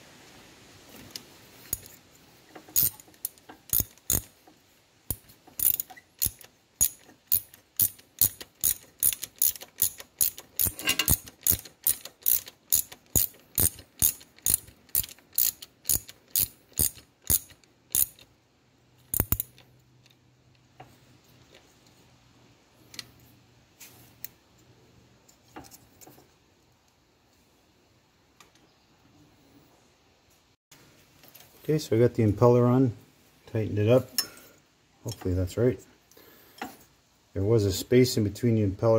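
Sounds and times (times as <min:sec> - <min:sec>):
hand ratchet clicking: 0:01.7 - 0:01.9, 0:02.6 - 0:04.4, 0:05.1 - 0:18.3, 0:19.1 - 0:19.7.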